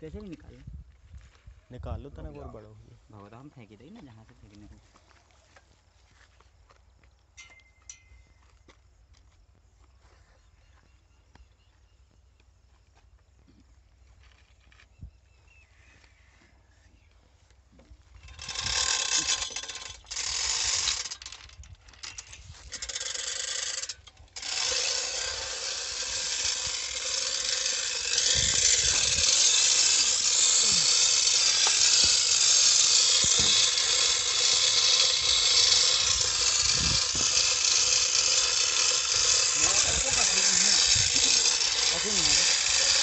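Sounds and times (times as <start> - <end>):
chain clattering through hoist: 7.4 - 8.4, 18.1 - 43.0
ratchet clicking: 18.1 - 43.0.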